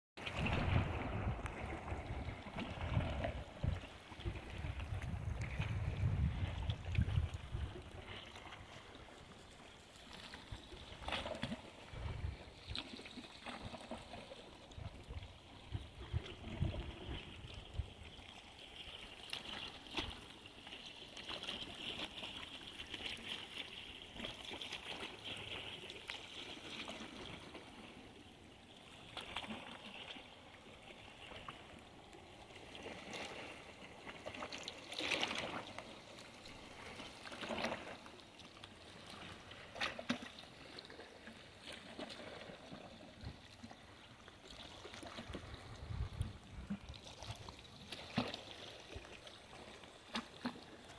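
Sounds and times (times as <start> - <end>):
sharp water splash: 0.2 - 5.1
small waves lapping against wall: 0.2 - 50.9.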